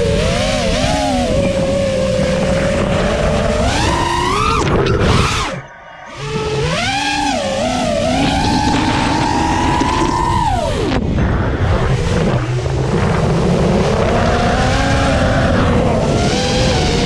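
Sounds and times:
drone motors whining: 0.0 - 17.0
wind on microphone: 0.0 - 17.0.

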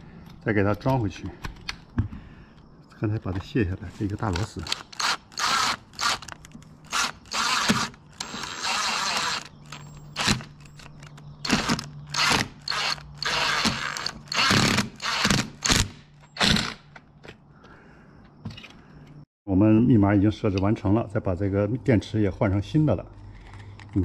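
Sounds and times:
screw being driven in: 4.3 - 15.8.

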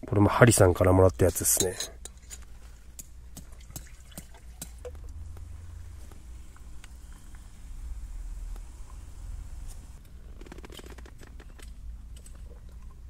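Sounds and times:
liquid dripping and splashing: 3.0 - 5.4.

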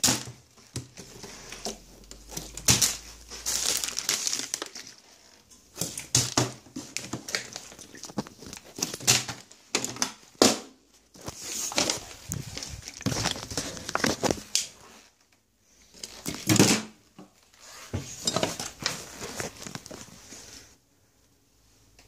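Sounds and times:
phone rustling and scraping: 4.9 - 9.5, 11.1 - 15.2, 17.4 - 20.8.

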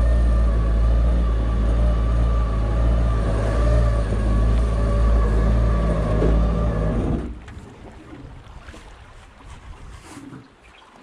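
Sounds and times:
boat engine rumbling: 0.0 - 9.4.

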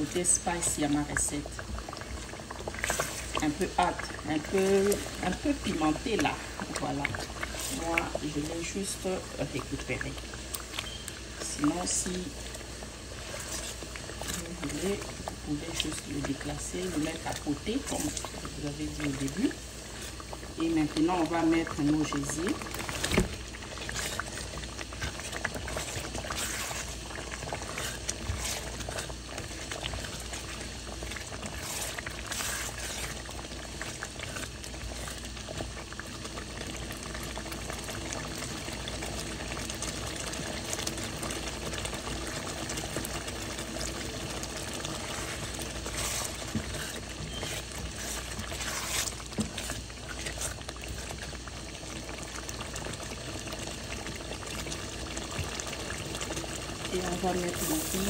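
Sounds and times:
sauce bubbling: 0.0 - 58.0
spatula scraping pot: 13.2 - 35.3, 44.8 - 51.4.

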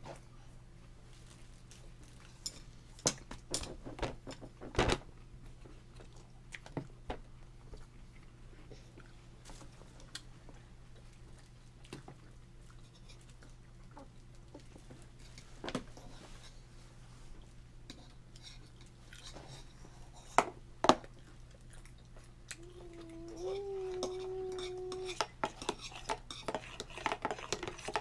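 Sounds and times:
toddler humming: 22.5 - 25.3.

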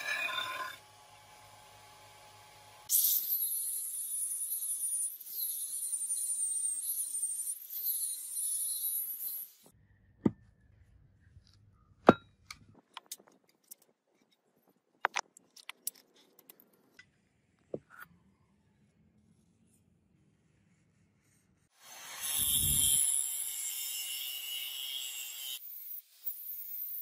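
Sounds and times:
angle grinder whining on steel: 21.8 - 23.5.

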